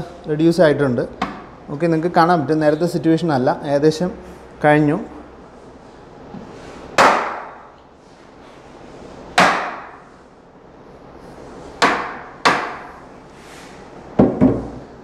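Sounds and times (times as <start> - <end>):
hammer knocking on plastic: 14.2 - 14.8.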